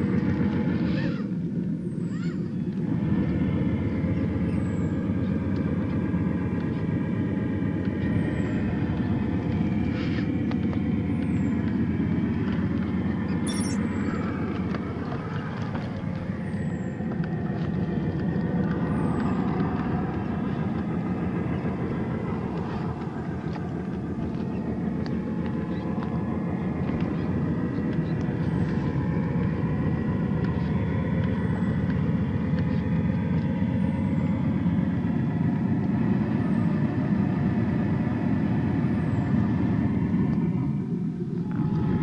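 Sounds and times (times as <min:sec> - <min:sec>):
dense low rumble: 0:39.6 - 0:42.0.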